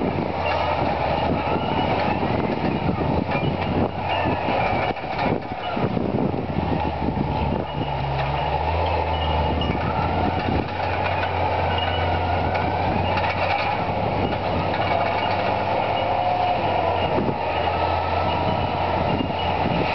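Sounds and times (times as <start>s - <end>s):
bulldozer diesel engine running: 0.0s - 19.9s
steel tracks clattering: 0.3s - 6.0s, 6.7s - 19.9s.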